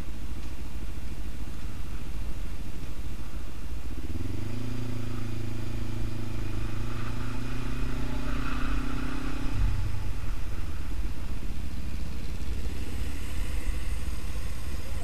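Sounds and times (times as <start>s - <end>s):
motorcycle engine running: 9.5s - 15.0s.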